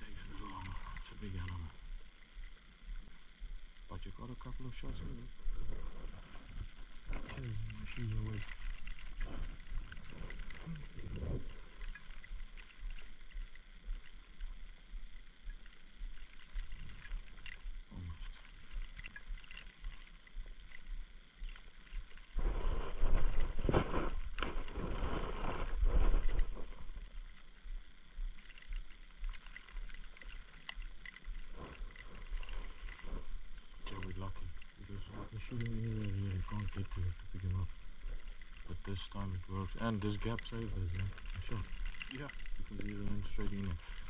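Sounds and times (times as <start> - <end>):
faint ticks: 0.0 - 44.0
wind rumbling on microphone: 5.0 - 39.6.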